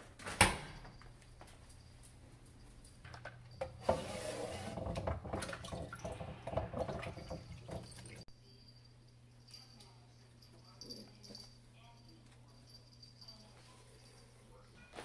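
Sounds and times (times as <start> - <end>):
dishes clattering: 3.1 - 8.2
glass container being rinsed: 3.7 - 8.2
faucet running into sink: 4.6 - 8.2.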